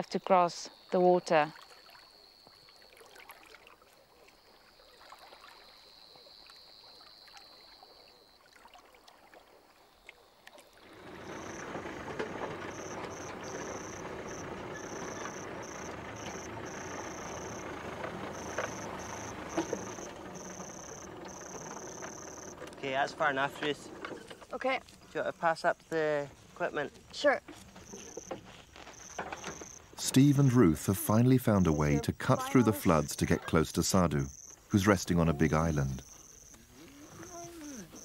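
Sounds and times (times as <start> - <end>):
off-road vehicle engine running: 10.8 - 24.6, 28.9 - 36.5
grass brushing along vehicle: 10.8 - 38.0.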